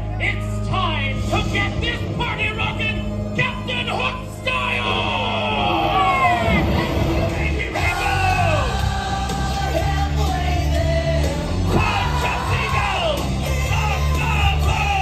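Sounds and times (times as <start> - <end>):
loud music with heavy bass: 1.1 - 15.0
voices singing and yelling: 4.5 - 15.0.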